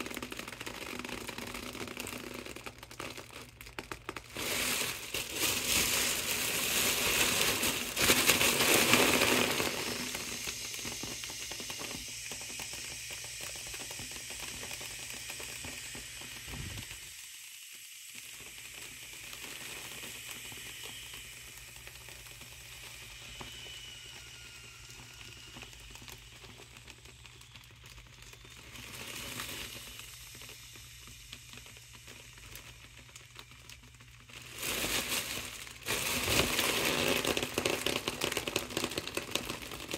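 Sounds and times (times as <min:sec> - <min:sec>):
foil crinkling: 0:00.0 - 0:12.7, 0:25.3 - 0:39.9
air hissing out of balloon: 0:04.2 - 0:17.5, 0:28.4 - 0:32.6, 0:34.4 - 0:39.4.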